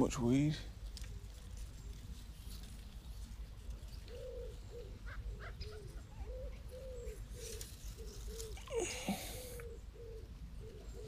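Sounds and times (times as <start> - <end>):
pigeon cooing: 4.0 - 11.0.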